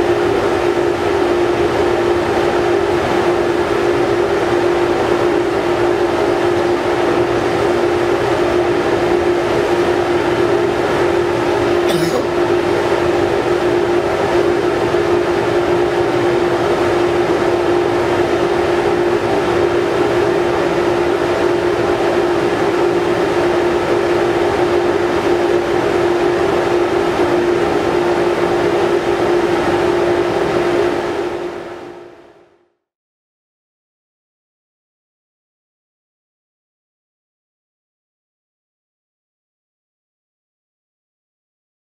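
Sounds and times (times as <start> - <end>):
ferry machinery drone: 0.0 - 31.9.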